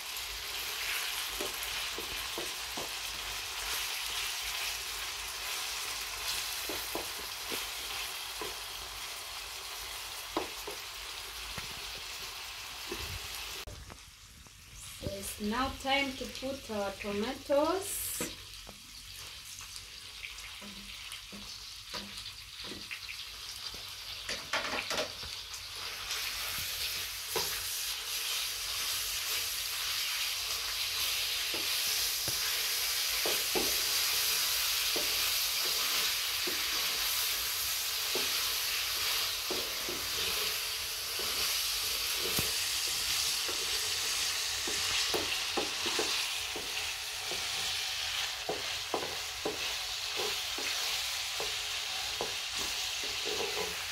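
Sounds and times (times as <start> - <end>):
food sizzling in a frying pan: 0.0 - 53.9
wooden spoon scraping a pan: 25.8 - 53.9.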